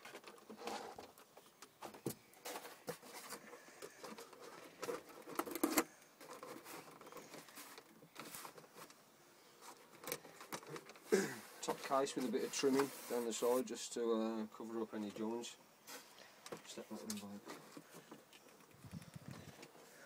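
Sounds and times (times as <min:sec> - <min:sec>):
cardboard taps scrapes and rustles: 0:00.0 - 0:09.0, 0:11.6 - 0:13.6.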